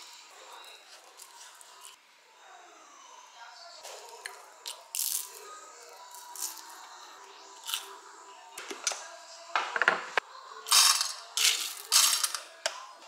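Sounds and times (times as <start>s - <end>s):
clinks of small metal parts: 10.7s - 12.5s.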